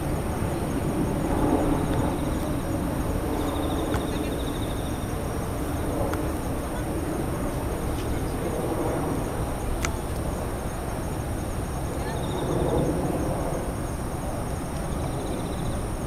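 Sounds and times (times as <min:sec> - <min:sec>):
insects chirping: 0:00.0 - 0:16.0
pulsed insect trill: 0:00.0 - 0:16.0
faint sharp clicks: 0:09.8 - 0:10.2.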